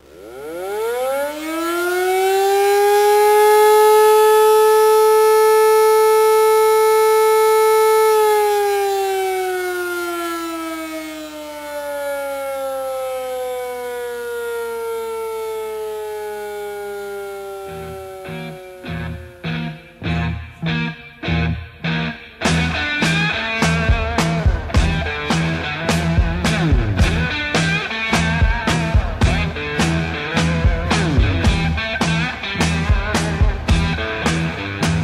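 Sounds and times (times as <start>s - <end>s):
siren wailing: 0.0s - 35.0s.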